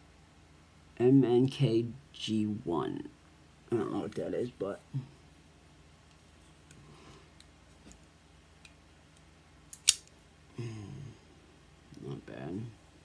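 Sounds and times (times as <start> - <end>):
knife blade clicking open: 9.8 - 10.1.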